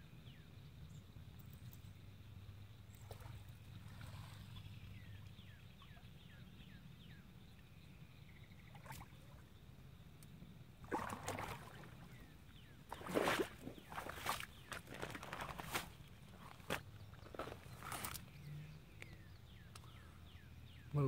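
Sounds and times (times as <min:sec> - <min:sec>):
low steady hum: 0:00.0 - 0:21.0
fish splashing at water surface: 0:10.8 - 0:12.2, 0:12.9 - 0:15.2.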